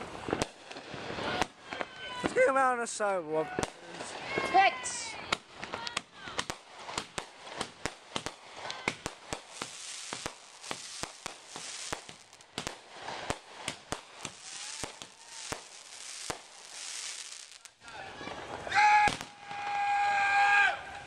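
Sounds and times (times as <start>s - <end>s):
fireworks cracking: 0.0s - 19.9s
hiss of sparks: 6.4s - 17.9s.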